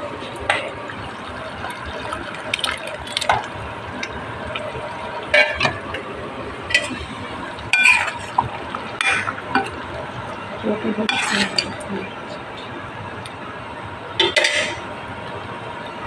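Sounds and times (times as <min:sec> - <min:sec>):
metal clinking and scraping in pot: 0:07.7 - 0:08.4, 0:11.1 - 0:11.8.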